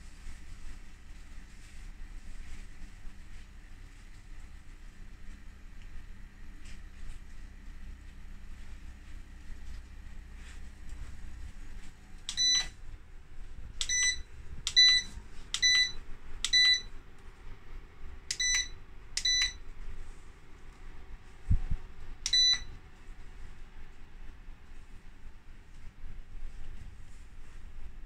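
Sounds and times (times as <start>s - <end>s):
short high beeps: 13.8s - 16.9s, 22.3s - 22.7s.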